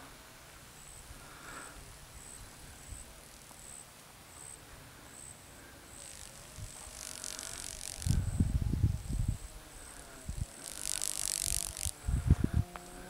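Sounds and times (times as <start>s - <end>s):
wind rushing through trees: 0.0s - 13.0s
wind buffeting microphone: 6.5s - 13.0s.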